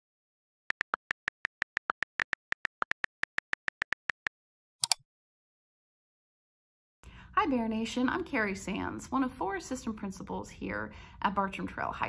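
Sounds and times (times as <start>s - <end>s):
keyboard keystroke clicks: 0.7s - 5.0s.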